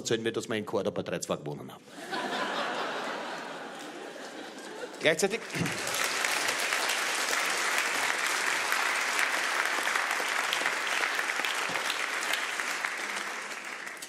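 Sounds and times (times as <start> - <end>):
audience applauding: 2.1 - 14.0.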